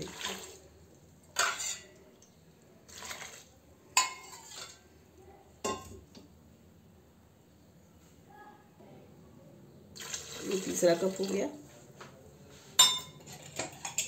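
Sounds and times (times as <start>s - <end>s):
metal cup clinking on pots: 1.4s - 1.9s, 4.0s - 4.8s, 5.6s - 6.1s, 12.8s - 14.0s.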